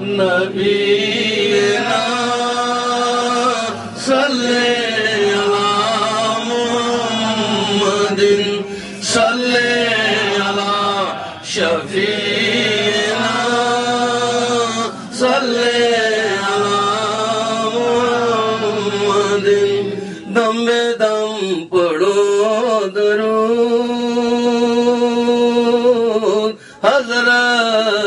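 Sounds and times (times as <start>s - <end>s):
men chanting devotional refrain: 0.0s - 28.0s.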